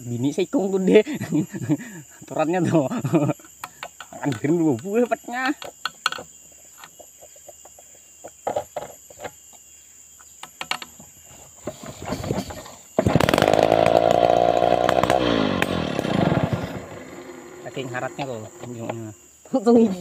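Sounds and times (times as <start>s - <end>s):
chainsaw engine running: 13.0s - 19.0s.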